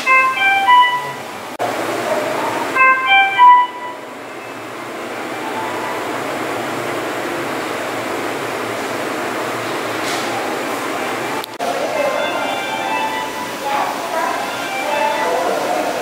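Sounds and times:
monitor alarm beeps: 0.0s - 1.4s, 2.7s - 6.1s, 11.9s - 13.6s.

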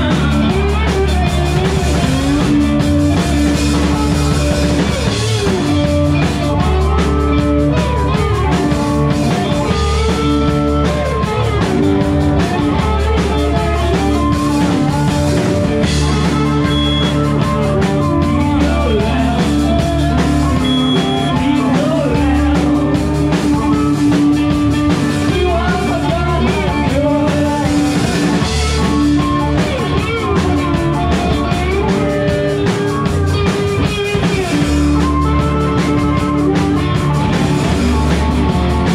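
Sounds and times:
person singing: 0.0s - 33.7s
drum kit: 0.0s - 38.9s
guitar: 0.0s - 38.9s
upright bass: 0.0s - 38.9s
harmonica: 10.5s - 22.0s.

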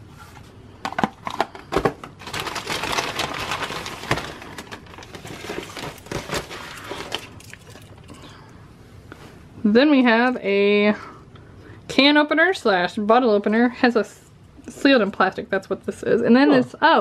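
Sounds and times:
plastic packaging crinkling: 1.0s - 8.2s.

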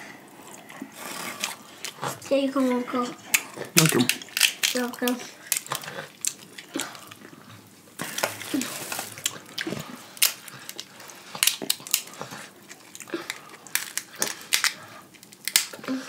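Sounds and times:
rustling: 0.7s - 15.6s
crab shells cracking: 3.2s - 16.0s.

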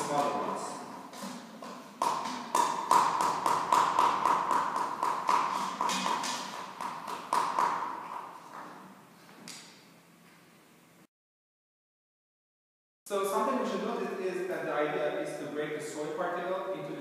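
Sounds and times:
pestle pounding soil in mortar: 2.0s - 7.9s.

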